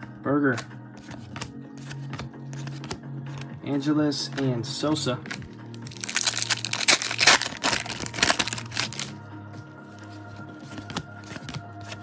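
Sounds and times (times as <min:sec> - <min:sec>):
background music: 0:00.0 - 0:12.0
foil wrapper tearing and crinkling: 0:05.9 - 0:09.1.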